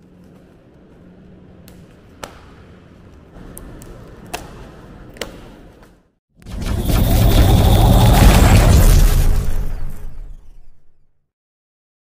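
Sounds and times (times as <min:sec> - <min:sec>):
low background noise: 0:00.0 - 0:06.2.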